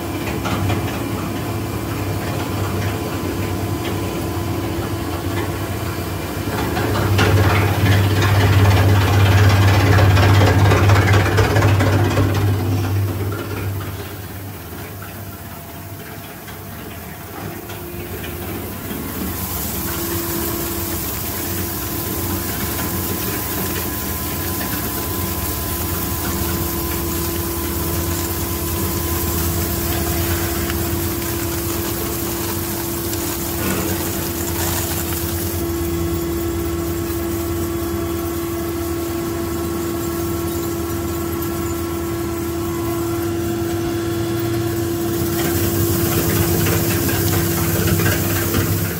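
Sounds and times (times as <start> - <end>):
shredder motor humming and whining: 17.9 - 48.9
hiss: 18.6 - 35.7, 45.0 - 48.9.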